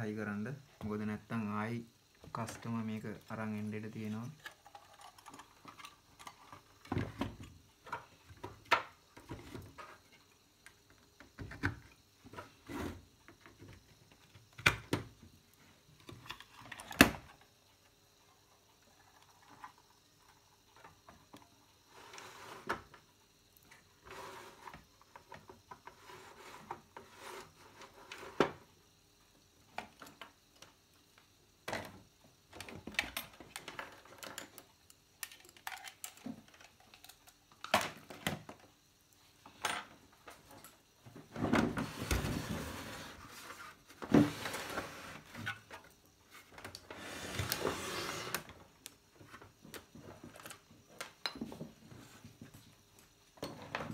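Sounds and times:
plastic cabinet scraping: 0:41.2 - 0:45.7, 0:46.8 - 0:48.6.

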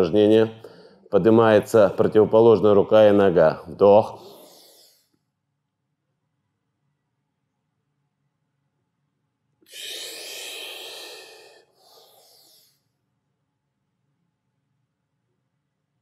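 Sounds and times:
man breathing heavily: 0:00.6 - 0:01.1, 0:04.2 - 0:05.1, 0:09.6 - 0:12.8.

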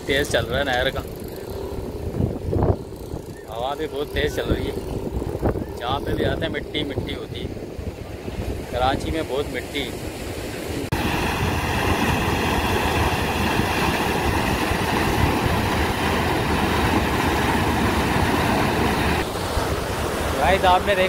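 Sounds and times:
water rushing down concrete drop: 0:10.9 - 0:21.0.

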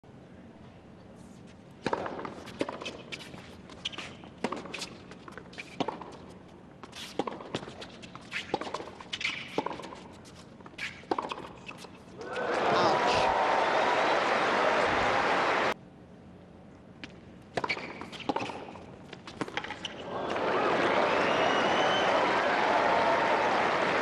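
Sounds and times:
shoes squeaking on court: 0:01.4 - 0:12.5, 0:17.0 - 0:20.1
tennis ball hit by racquet: 0:17.5 - 0:20.0.

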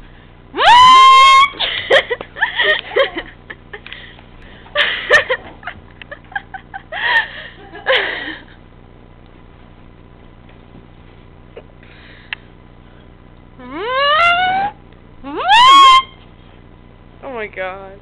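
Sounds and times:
bursts of laughter: 0:01.3 - 0:04.1, 0:04.8 - 0:08.6
kazoo buzzing: 0:13.6 - 0:16.3.

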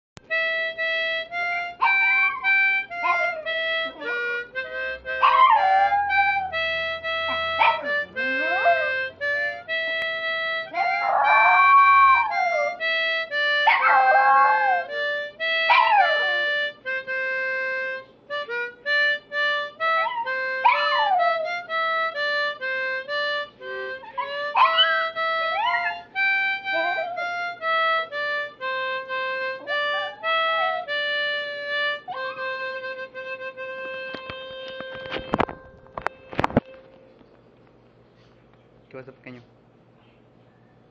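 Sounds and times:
harmonica playing held notes: 0:00.2 - 0:37.1
small dog howling: 0:01.8 - 0:04.1, 0:05.2 - 0:09.0, 0:10.7 - 0:12.8, 0:13.7 - 0:14.9, 0:15.7 - 0:16.6, 0:20.0 - 0:21.5, 0:24.0 - 0:27.4, 0:29.6 - 0:31.0.

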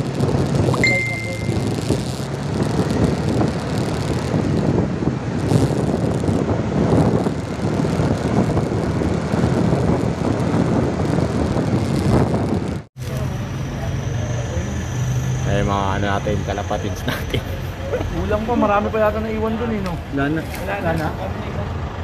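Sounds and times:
vehicle engine and road noise: 0:00.0 - 0:22.0
high beep: 0:00.7 - 0:01.8.

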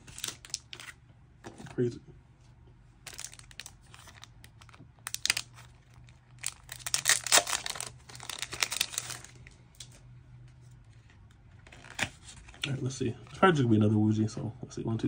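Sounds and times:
plastic shrink wrap crinkling: 0:00.0 - 0:01.0, 0:03.0 - 0:10.0.

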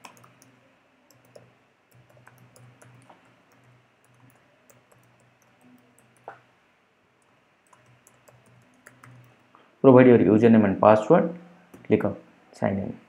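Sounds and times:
computer keyboard keystrokes: 0:00.0 - 0:06.4, 0:07.2 - 0:09.5
faint low hum: 0:00.0 - 0:13.0.

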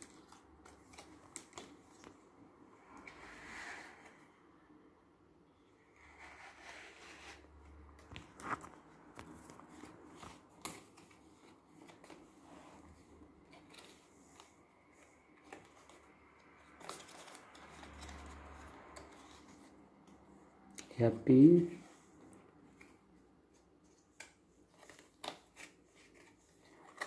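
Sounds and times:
stiff paper rustling and flapping: 0:07.4 - 0:19.8.

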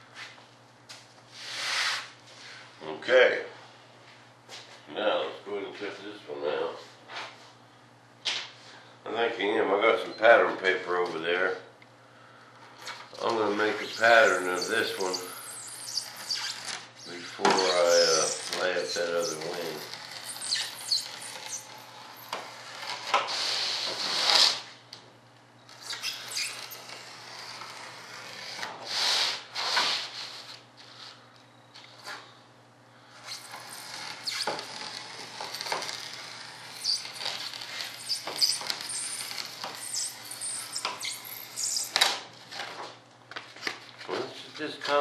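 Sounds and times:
knife scraping along sheet: 0:01.3 - 0:02.1, 0:12.8 - 0:24.7, 0:25.7 - 0:31.2, 0:33.2 - 0:42.0.

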